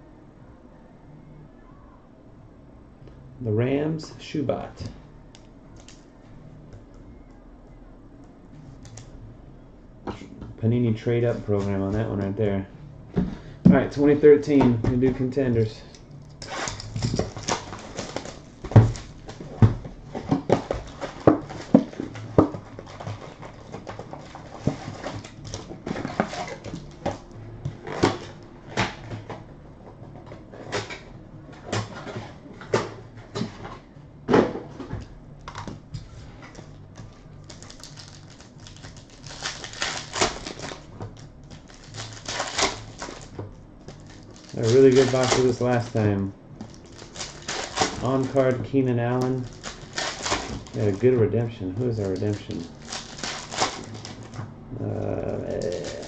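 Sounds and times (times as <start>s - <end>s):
wrapper crinkling: 16.3s - 19.4s, 37.3s - 56.0s.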